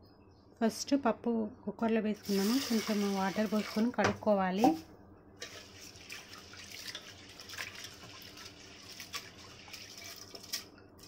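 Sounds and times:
water swishing and sloshing: 5.4s - 10.7s.

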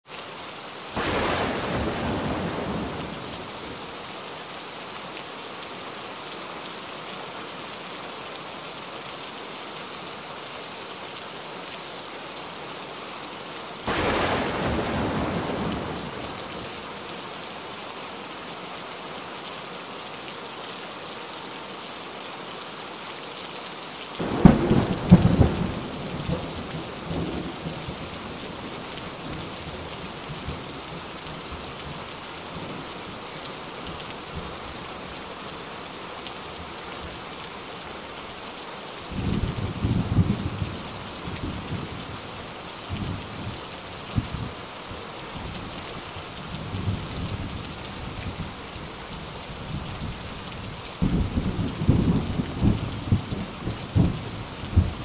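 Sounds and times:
steady rain falling: 0.0s - 55.0s
thunder cracking and rolling: 1.0s - 3.2s, 13.9s - 16.2s.

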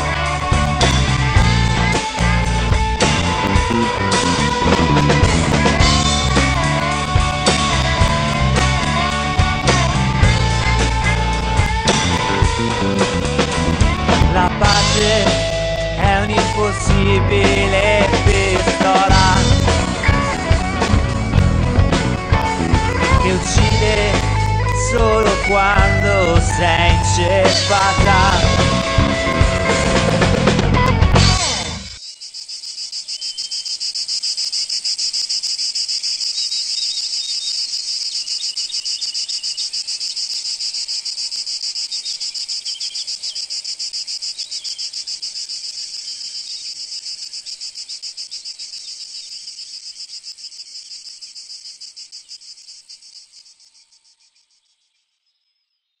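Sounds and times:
rock song: 0.0s - 32.0s
insect chirring: 31.6s - 56.0s.

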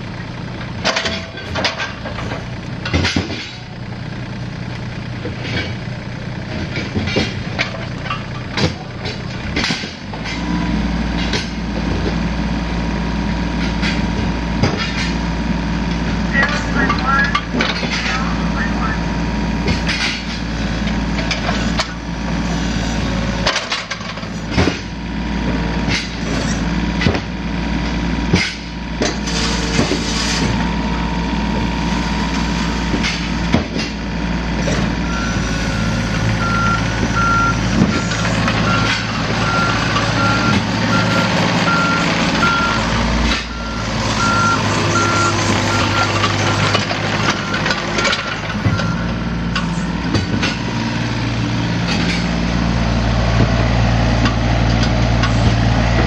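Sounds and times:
diesel engine humming: 0.0s - 56.0s
machine knocks and clanks: 0.7s - 3.7s, 6.5s - 10.4s, 13.6s - 15.2s, 19.6s - 22.0s, 23.4s - 27.4s, 32.8s - 34.9s, 44.9s - 50.8s.

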